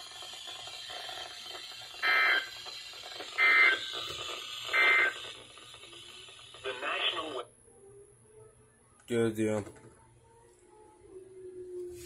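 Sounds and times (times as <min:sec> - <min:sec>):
faint radio hiss: 0:06.0 - 0:12.0.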